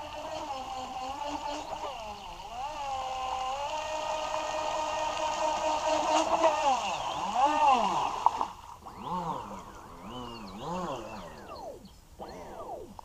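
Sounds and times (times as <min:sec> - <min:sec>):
toy boat motor whining: 0:00.0 - 0:13.0.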